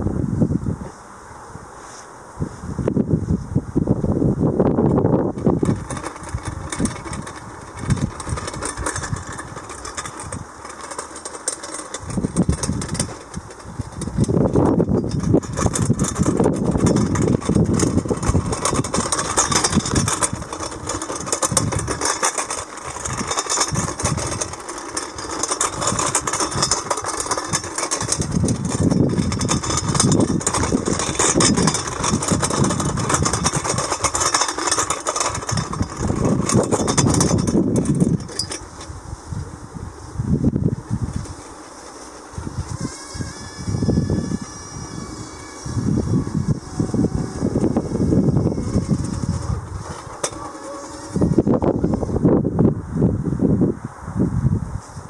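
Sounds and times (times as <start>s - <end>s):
robot wheels and frame rattling: 4.4s - 52.7s
low rumbling motor surges: 38.8s - 54.8s.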